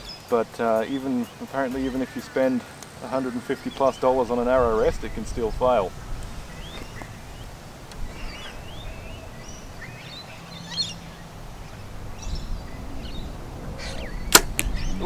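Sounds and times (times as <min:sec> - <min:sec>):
birds chirping and whistling: 0:00.0 - 0:15.0
wind rumble on microphone: 0:04.0 - 0:15.0.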